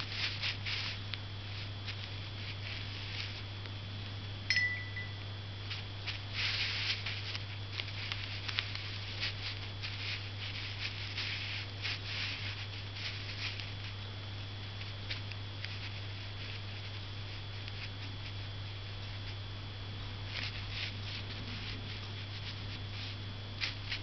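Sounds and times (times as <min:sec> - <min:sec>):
low electrical hum: 0:00.0 - 0:24.0
sharp click with ring: 0:04.5 - 0:05.2.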